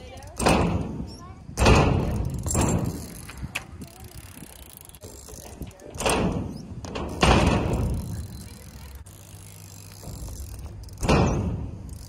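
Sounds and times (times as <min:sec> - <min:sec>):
bike landing thud: 0:00.3 - 0:03.5, 0:05.9 - 0:12.0.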